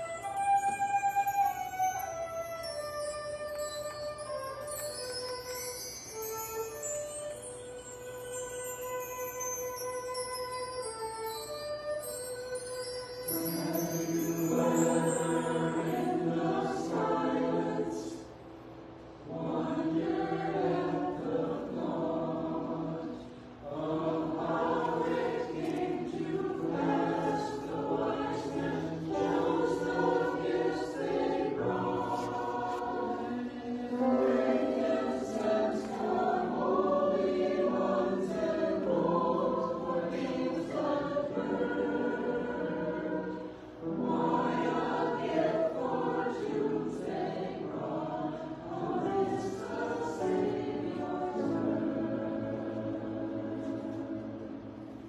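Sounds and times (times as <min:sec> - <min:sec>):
mixed choir singing: 0:13.3 - 0:18.4, 0:19.2 - 0:55.0.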